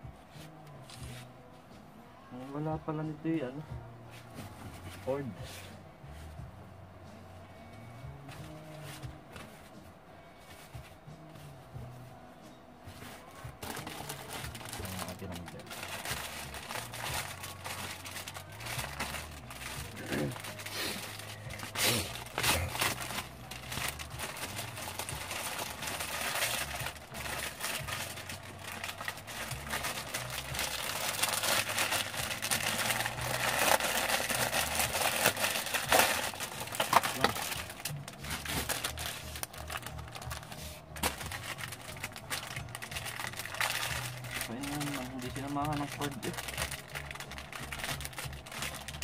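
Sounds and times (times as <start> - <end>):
plastic packaging crinkling: 13.6 - 49.0.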